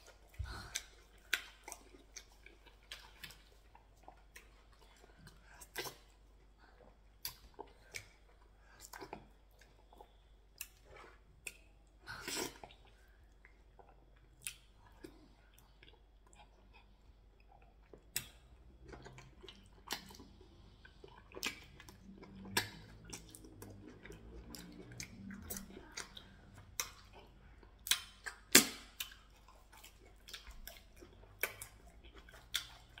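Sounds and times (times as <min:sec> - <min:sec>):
person chewing and swallowing: 0:00.0 - 0:33.0
wet mouth clicks and smacks: 0:18.0 - 0:18.5, 0:27.8 - 0:29.3.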